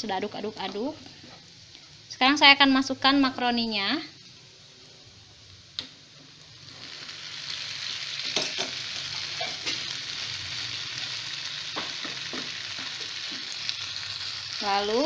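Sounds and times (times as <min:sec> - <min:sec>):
food sizzling in a pan: 0:00.0 - 0:15.0
wooden spatula knocking a pan: 0:11.7 - 0:13.5.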